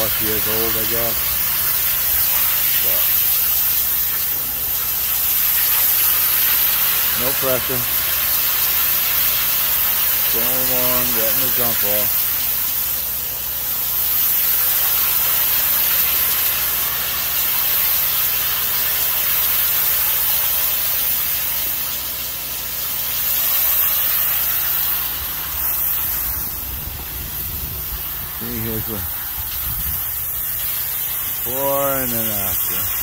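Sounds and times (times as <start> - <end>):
water spray hissing on shingles: 0.0 - 33.0
steady low hum: 25.1 - 33.0.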